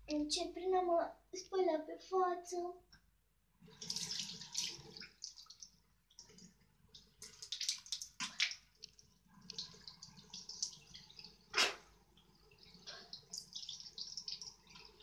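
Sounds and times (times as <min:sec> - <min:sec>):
tap water running into basin: 0:03.6 - 0:15.0
hands splashing water: 0:03.7 - 0:11.9.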